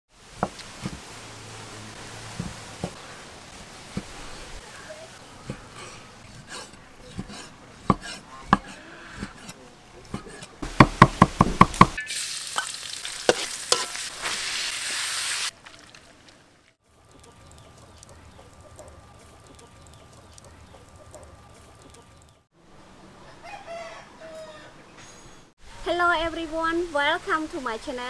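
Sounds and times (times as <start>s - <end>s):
spatula scraping a pan: 5.4s - 10.5s, 13.3s - 14.4s
cleaver chopping meat on board: 6.5s - 9.4s
meat sizzling in a pan: 11.8s - 16.1s.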